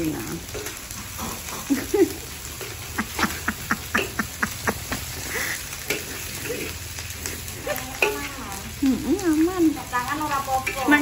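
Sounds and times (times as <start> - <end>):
metal ladle scraping a wok: 5.4 - 8.6.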